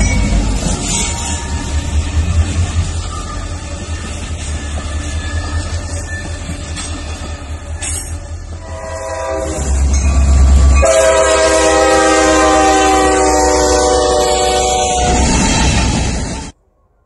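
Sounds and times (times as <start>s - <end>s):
passing train rumble: 0.0s - 16.7s
locomotive air horn: 8.6s - 9.9s, 10.5s - 16.0s.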